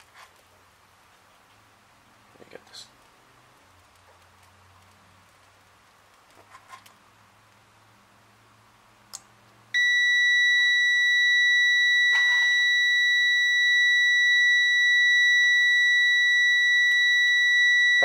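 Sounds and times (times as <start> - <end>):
continuity beeper high-pitched tone: 9.8 - 18.0.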